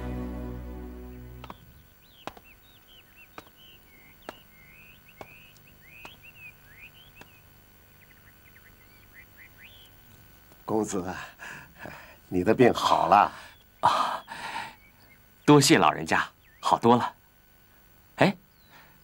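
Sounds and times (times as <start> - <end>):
background music: 0.0 - 1.6
small birds chirping: 0.9 - 19.0
sharp knocks: 2.2 - 2.5, 4.2 - 4.4.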